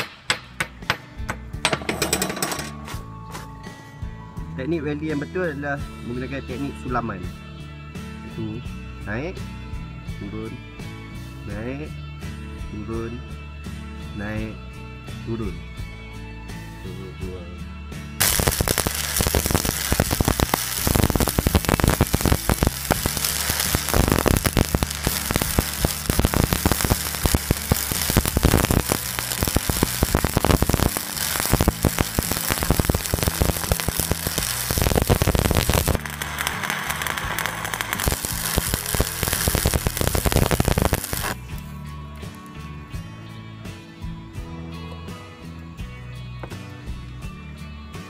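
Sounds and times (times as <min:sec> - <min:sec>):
background guitar music: 0:00.1 - 0:48.0
welding arc crackling and sizzling: 0:18.2 - 0:41.6.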